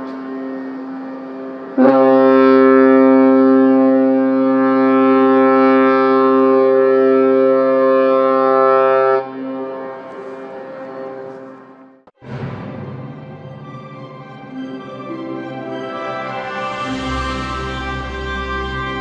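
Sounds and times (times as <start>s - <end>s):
faint steady horn tone: 0.0s - 12.0s
ship horn blast: 0.0s - 19.0s.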